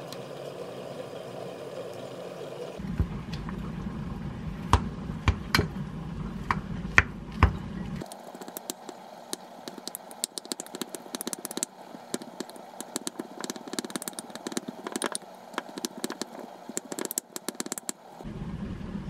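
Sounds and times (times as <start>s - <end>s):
spatula tapping and scraping glass: 8.4s - 18.0s.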